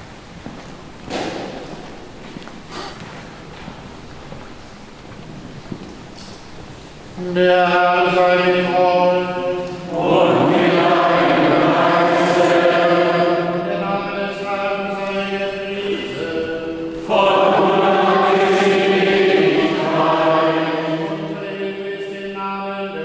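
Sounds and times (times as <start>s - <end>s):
voices singing a chant: 7.2s - 23.0s.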